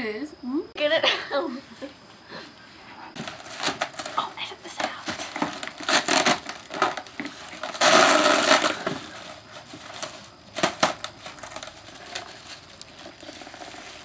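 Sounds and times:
plastic wrap crinkling: 0:03.2 - 0:14.0.

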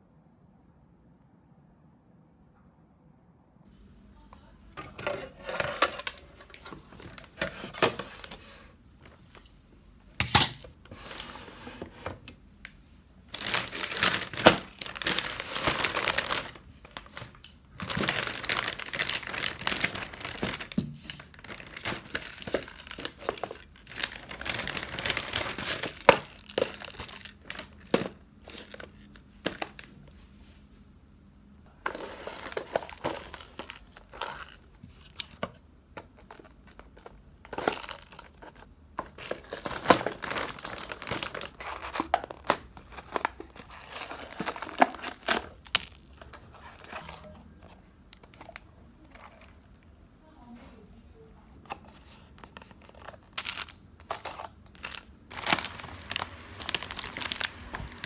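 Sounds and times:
plastic bag crinkling: 0:13.3 - 0:30.0, 0:31.7 - 0:35.4, 0:36.1 - 0:49.8, 0:52.4 - 0:58.0.

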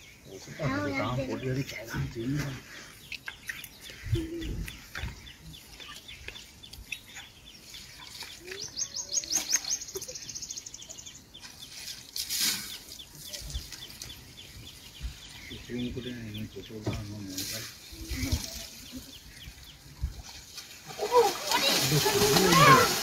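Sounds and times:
bird ticking calls: 0:02.9 - 0:11.6.

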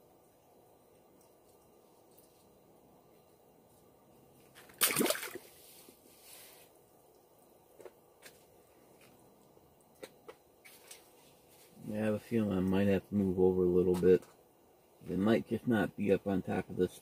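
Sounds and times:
water splashing and sloshing: 0:04.5 - 0:05.8.

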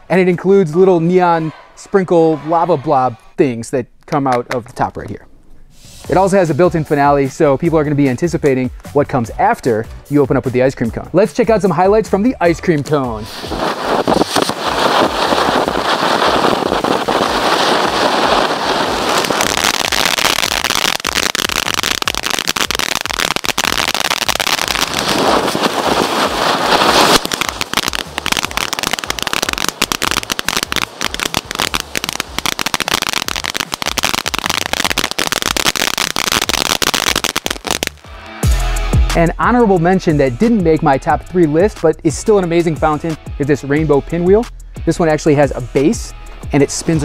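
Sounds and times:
firework fountain hissing: 0:13.2 - 0:38.0
rapid crackling pops: 0:13.4 - 0:38.2.

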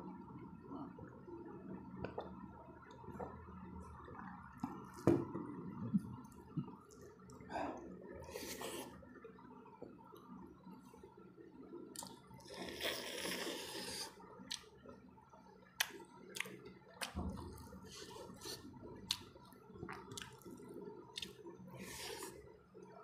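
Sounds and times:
chewing with lip smacks: 0:18.4 - 0:21.4.

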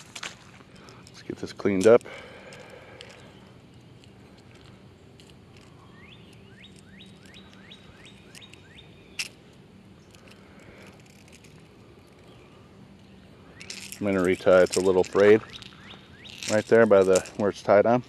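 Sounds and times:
songbird whistling rising notes: 0:05.7 - 0:09.2, 0:15.4 - 0:16.5.

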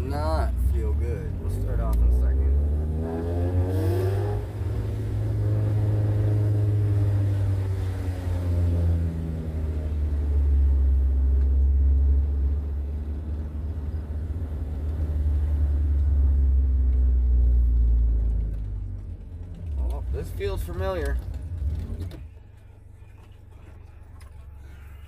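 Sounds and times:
car engine and tyres rumbling: 0:00.0 - 0:25.0.

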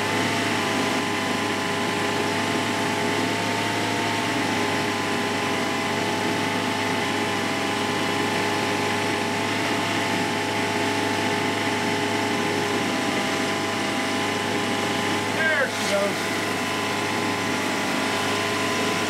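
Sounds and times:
engine whining: 0:00.0 - 0:19.0
outboard motor running: 0:00.0 - 0:19.0.

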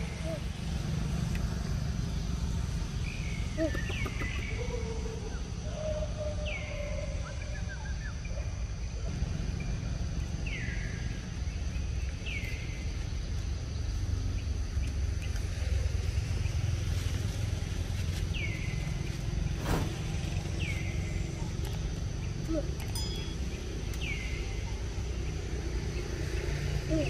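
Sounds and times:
high hum: 0:19.2 - 0:23.7.

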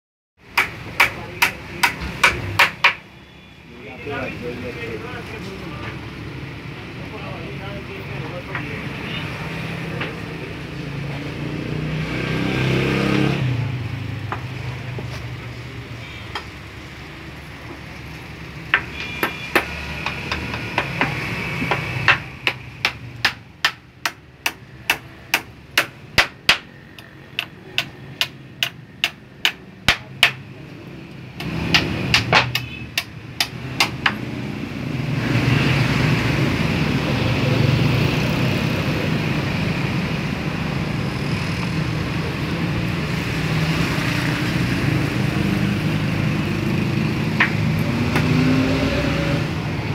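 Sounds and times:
hammer nailing wood: 0:00.5 - 0:03.0, 0:18.7 - 0:30.5, 0:31.4 - 0:34.2.

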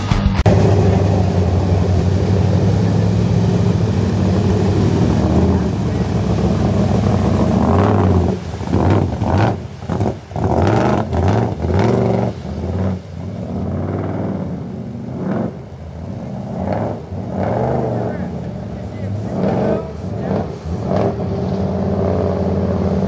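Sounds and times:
truck engine revving: 0:00.0 - 0:23.0.

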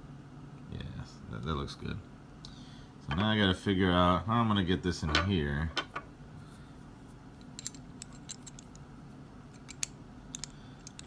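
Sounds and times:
metal puzzle pieces clicking: 0:07.6 - 0:08.8, 0:09.6 - 0:11.0.

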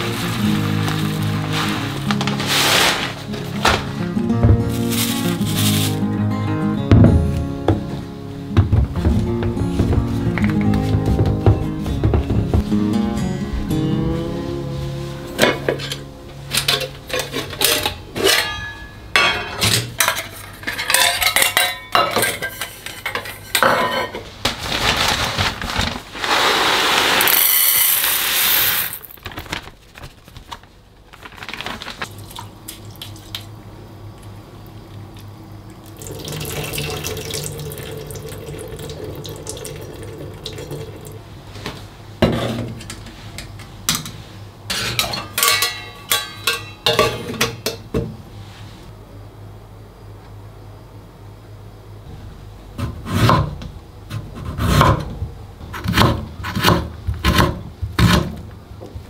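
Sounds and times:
metal pots and utensils clattering: 0:15.4 - 0:24.3, 0:44.7 - 0:48.0
dry rice poured into metal pot: 0:26.2 - 0:29.2
running water: 0:35.9 - 0:41.2.

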